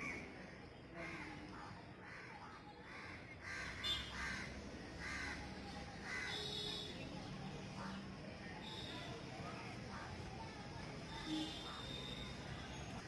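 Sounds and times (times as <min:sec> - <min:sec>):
crows cawing: 0:02.0 - 0:06.4.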